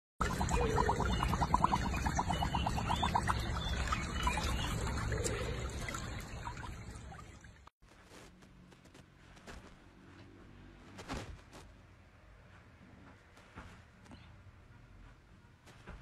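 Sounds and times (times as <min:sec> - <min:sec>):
water trickling and sloshing: 0:00.2 - 0:07.7.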